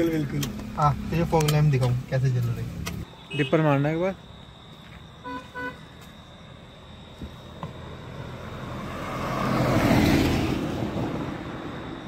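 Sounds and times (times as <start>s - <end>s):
vehicle passing by: 7.8s - 12.0s.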